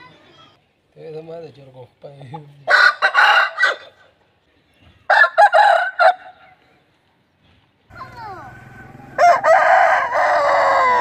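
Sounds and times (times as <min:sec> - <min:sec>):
rooster crowing: 0:08.5 - 0:11.0.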